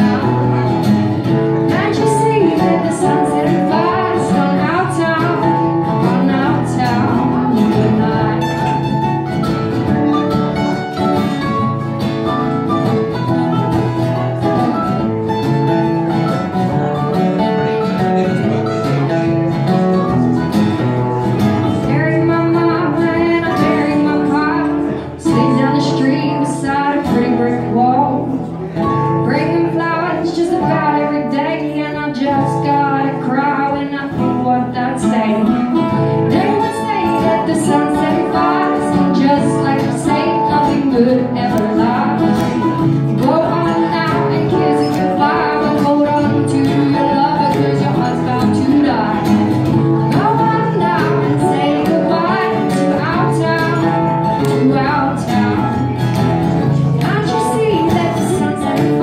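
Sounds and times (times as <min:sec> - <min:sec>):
woman singing: 0:00.0 - 0:09.2, 0:21.3 - 0:56.1, 0:56.7 - 0:59.0
acoustic guitars strumming: 0:00.0 - 0:59.0
mandolin: 0:00.0 - 0:59.0.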